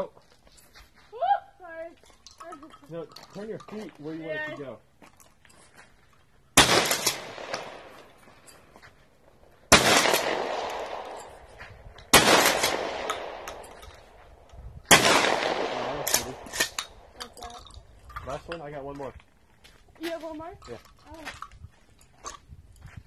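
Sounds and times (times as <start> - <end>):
shotgun shots echoing: 6.6 - 8.2, 9.7 - 11.5, 12.1 - 14.2, 14.9 - 17.2.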